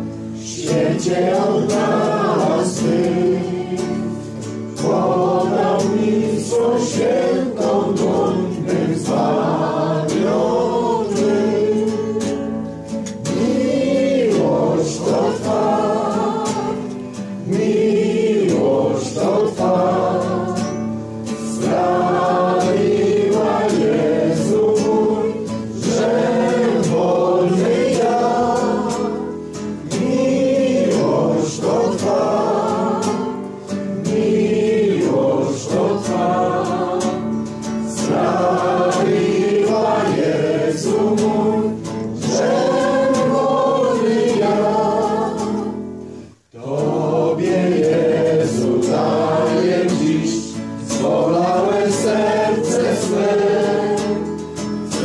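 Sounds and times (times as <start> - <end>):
congregation singing a hymn: 0.0 - 55.0.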